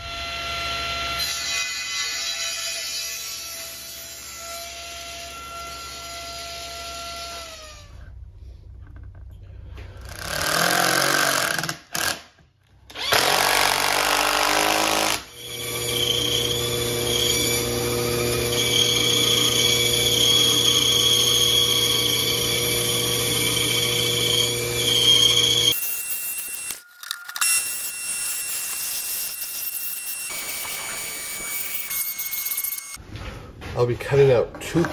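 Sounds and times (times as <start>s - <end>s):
bandsaw cutting wood: 10.1s - 12.2s, 12.9s - 33.0s
cordless drill driving screws: 12.9s - 33.0s.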